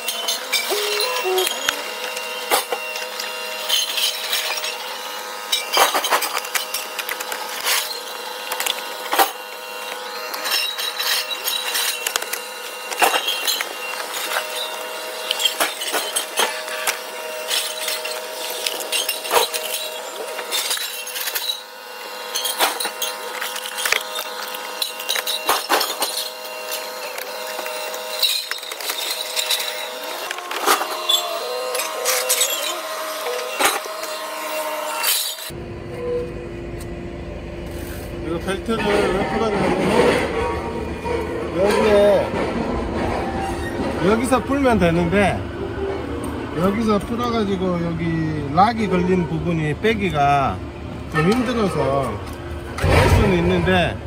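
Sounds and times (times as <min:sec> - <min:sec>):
clinks of tools and metal parts: 0:00.0 - 0:35.5
steady background hum: 0:00.0 - 0:54.0.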